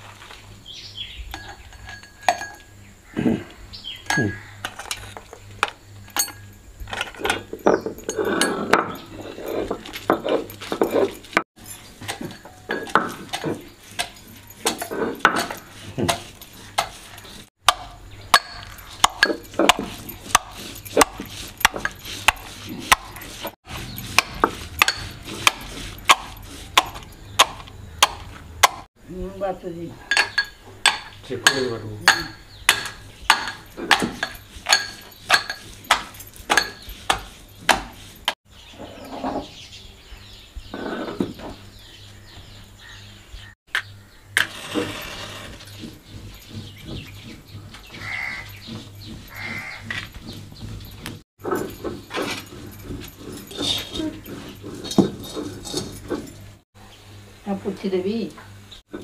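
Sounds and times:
steel pestle clinking in mortar: 0:01.3 - 0:02.7, 0:06.0 - 0:28.9, 0:30.1 - 0:38.4, 0:44.4 - 0:56.5
stone roller scraping spices: 0:04.1 - 0:28.9, 0:30.1 - 0:39.8, 0:43.4 - 0:56.6.

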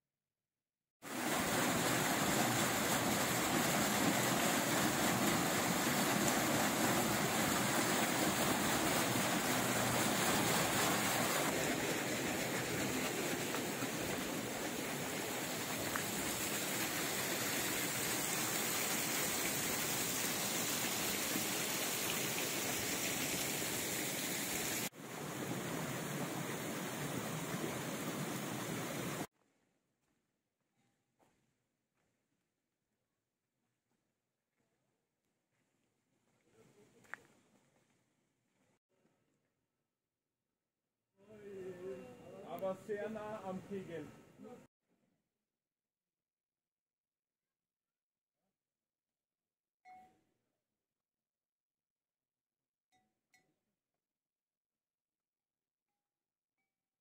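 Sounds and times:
water rushing through flume: 0:01.0 - 0:29.3.

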